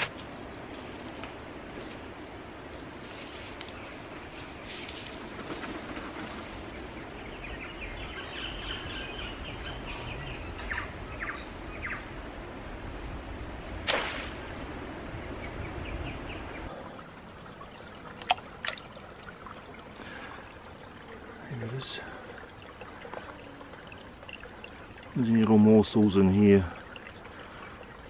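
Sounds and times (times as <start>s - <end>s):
small birds chirping: 6.5s - 12.2s
splash in pond: 13.8s - 14.7s.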